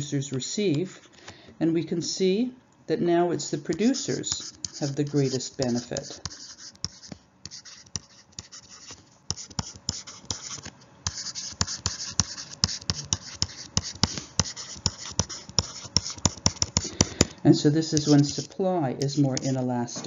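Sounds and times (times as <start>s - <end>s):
scratchy rustling: 3.7s - 16.8s, 17.8s - 19.7s
stylus clicking and tapping: 3.7s - 19.7s.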